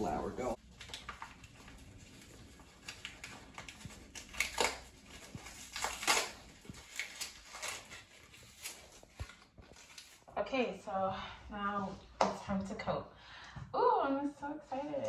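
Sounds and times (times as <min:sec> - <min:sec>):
paper flour bag crinkling: 0:00.6 - 0:10.3.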